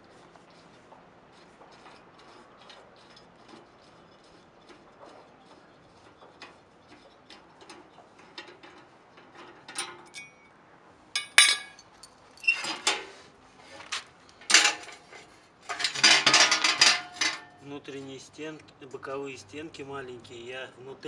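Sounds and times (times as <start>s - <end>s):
metal clanks and rattles: 1.3s - 10.5s, 11.2s - 13.1s, 13.7s - 17.6s.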